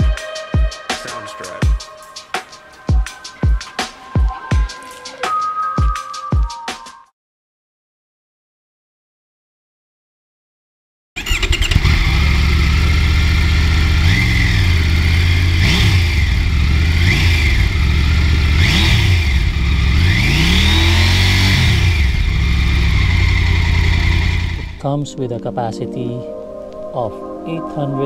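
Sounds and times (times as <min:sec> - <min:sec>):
motorcycle engine idling: 0:11.2 - 0:20.8, 0:21.4 - 0:24.8.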